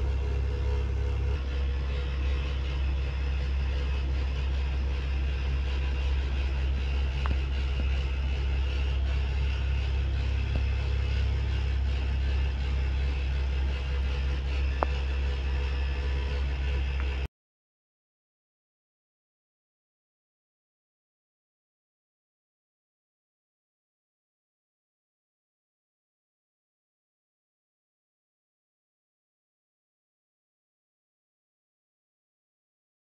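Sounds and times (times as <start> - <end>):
steady low rumble: 0.0 - 17.3.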